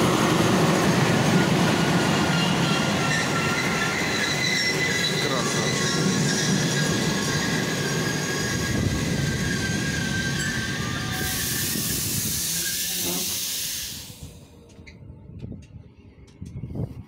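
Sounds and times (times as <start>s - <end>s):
train wheels rumbling and squealing: 0.0s - 17.0s
hiss: 11.1s - 14.5s.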